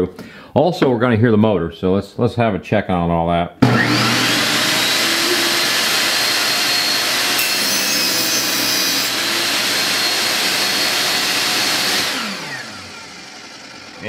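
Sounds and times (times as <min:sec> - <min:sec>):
motor winding down whine: 0:03.6 - 0:14.0
saw blade cutting plywood: 0:03.6 - 0:14.0
table saw running: 0:03.6 - 0:14.0.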